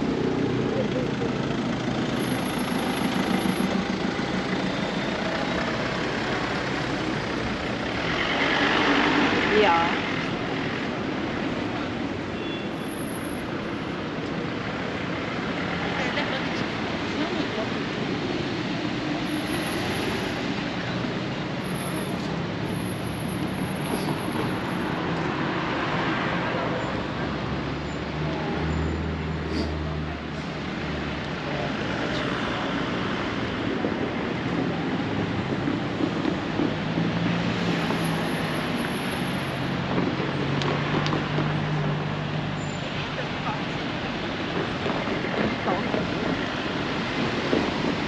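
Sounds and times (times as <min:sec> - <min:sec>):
vehicle engine humming: 0:00.0 - 0:12.2
steady traffic noise: 0:00.0 - 0:48.0.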